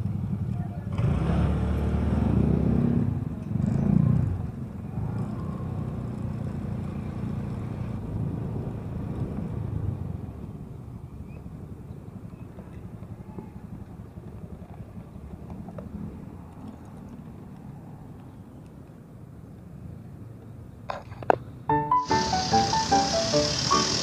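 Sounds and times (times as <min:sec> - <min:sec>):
scooter engine running: 0:21.8 - 0:24.0.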